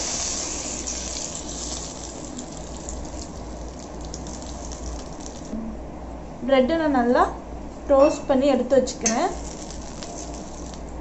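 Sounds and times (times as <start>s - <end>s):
butter sizzling on griddle: 0.0s - 5.5s, 9.4s - 10.8s.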